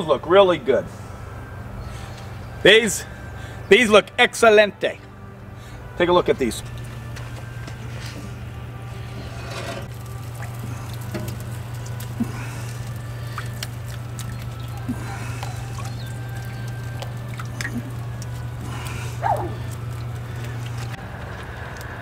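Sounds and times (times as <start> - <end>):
steady low hum: 0.0 - 22.0
liquid patter: 9.8 - 22.0.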